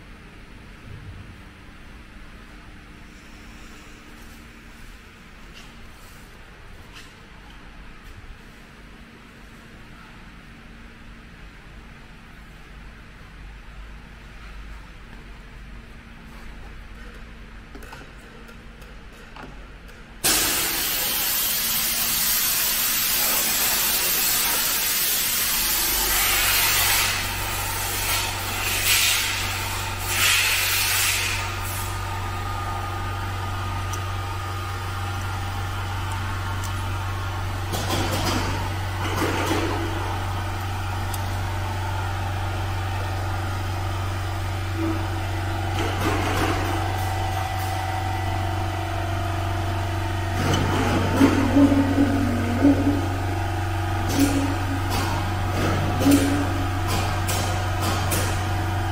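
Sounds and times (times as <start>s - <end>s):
loud hiss: 20.2s - 29.4s.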